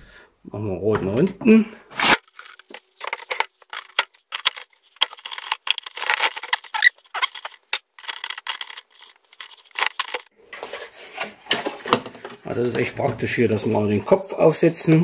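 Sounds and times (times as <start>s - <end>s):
plastic baskets clicking and scraping: 2.0s - 14.0s
ceramic filter media rattling: 2.3s - 10.3s.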